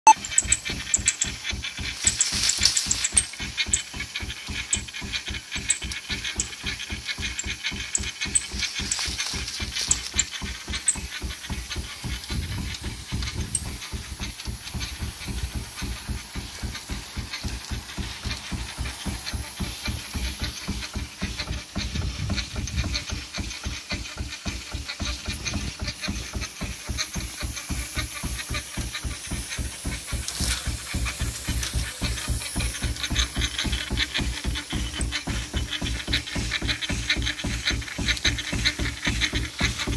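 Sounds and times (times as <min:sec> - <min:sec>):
steam engine exhaust beats: 0:00.1 - 0:39.9
steam hissing: 0:00.2 - 0:39.9.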